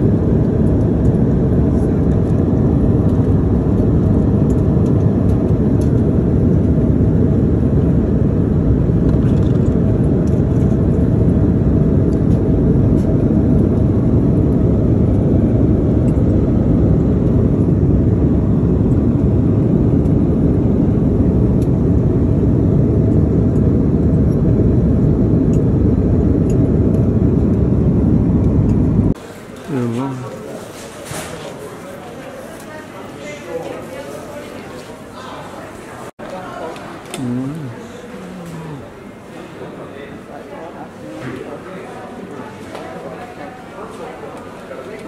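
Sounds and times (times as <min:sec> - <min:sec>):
airliner cabin noise: 0:00.0 - 0:32.6.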